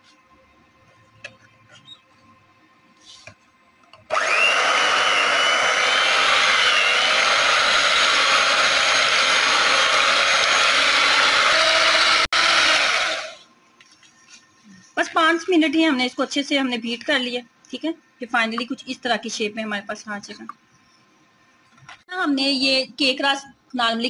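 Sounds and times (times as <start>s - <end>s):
electric hand mixer whining: 4.1s - 13.4s.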